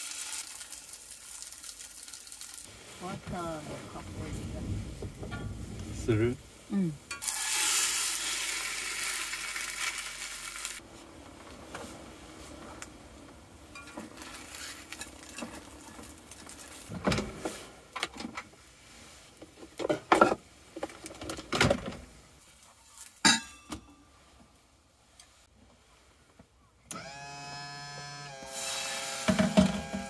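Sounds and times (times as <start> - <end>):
toast sizzling in a pan: 0.0 - 2.8, 7.2 - 10.8
kitchenware clinks and knocks: 23.3 - 24.0.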